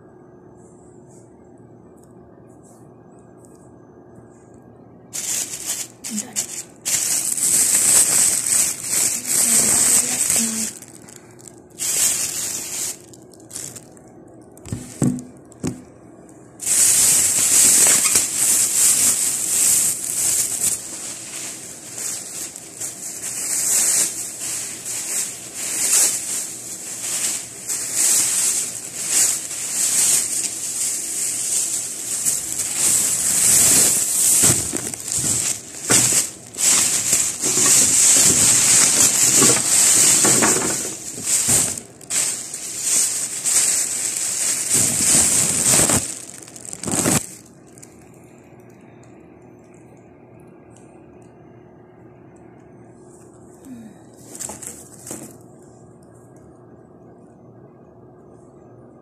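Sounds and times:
plastic bag crinkling: 5.1s - 15.9s, 16.6s - 49.0s, 53.7s - 55.4s.

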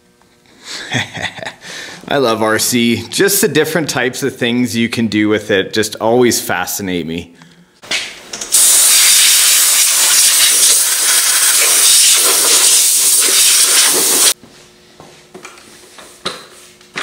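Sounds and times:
air blow gun hissing: 8.5s - 14.4s.

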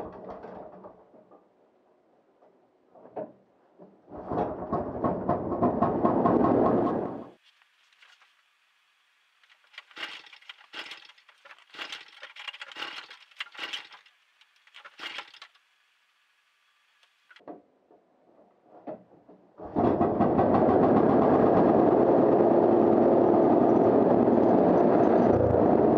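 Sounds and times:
crackling clinking handling noises: 9.4s - 15.6s
two-stroke engine running: 9.5s - 15.6s.

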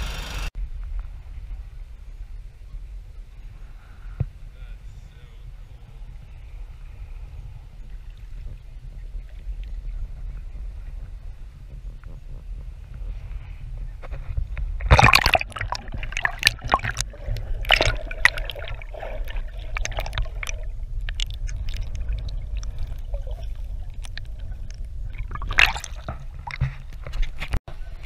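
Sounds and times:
low rumble: 0.6s - 28.0s
muffled underwater gurgling: 2.8s - 27.1s
water splashing and sloshing: 6.2s - 28.0s.

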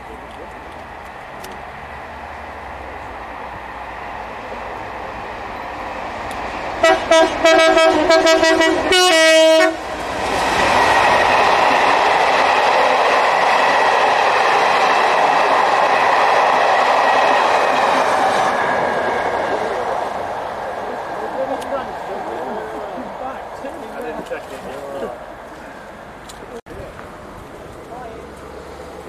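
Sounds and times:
diesel locomotive passing: 0.0s - 29.0s
train wheels rumbling on rails: 0.0s - 29.0s
train horn toots and blast: 6.8s - 9.8s.

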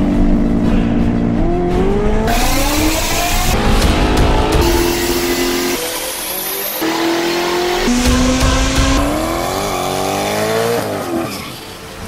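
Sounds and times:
car engines revving: 0.0s - 12.0s
tires squealing: 2.3s - 12.0s.

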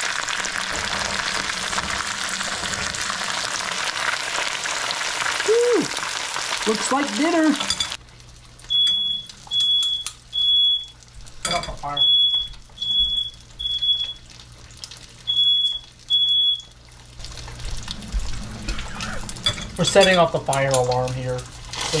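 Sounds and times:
smoke alarm beeping: 8.7s - 14.4s, 15.2s - 16.8s.

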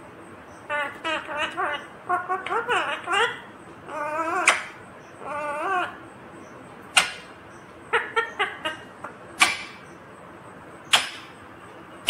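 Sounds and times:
parakeet chirps: 0.5s - 10.0s
parakeet squawks: 0.7s - 6.0s, 7.0s - 7.3s, 7.9s - 9.9s
parakeet warbling call: 0.7s - 6.0s.

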